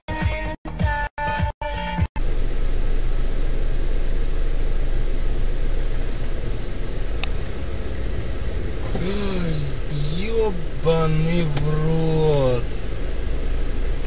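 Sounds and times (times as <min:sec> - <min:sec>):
music: 0:00.0 - 0:02.1
car engine and road noise: 0:01.6 - 0:14.0.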